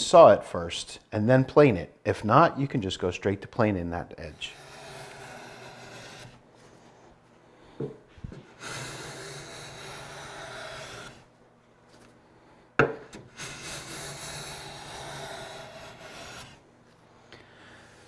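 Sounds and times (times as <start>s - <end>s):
hand plane shaving hiss: 4.3s - 6.4s, 8.3s - 11.3s, 13.3s - 16.6s.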